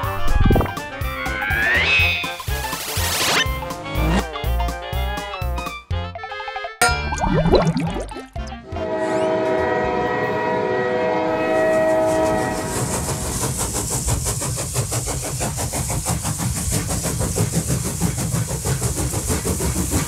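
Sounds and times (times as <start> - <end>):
train horn chord: 8.5 - 13.4
train rumble: 8.6 - 20.0
wheels clickety-clack on rails: 12.0 - 20.0.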